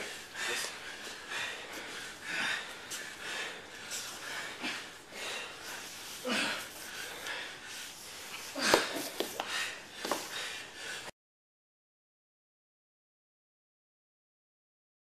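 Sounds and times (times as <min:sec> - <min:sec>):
people breathing hard: 0:00.0 - 0:11.1.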